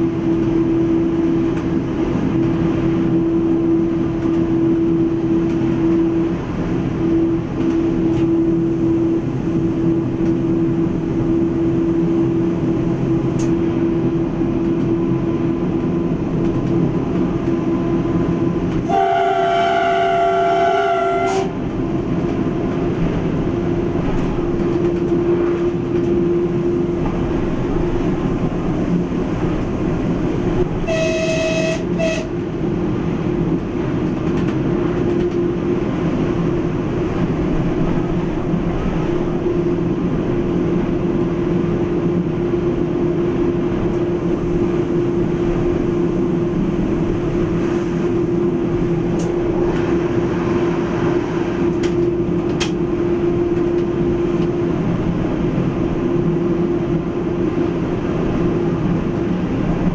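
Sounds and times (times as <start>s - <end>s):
diesel railcar running: 0.0s - 59.9s
train horn blast: 18.8s - 21.6s, 30.7s - 32.4s.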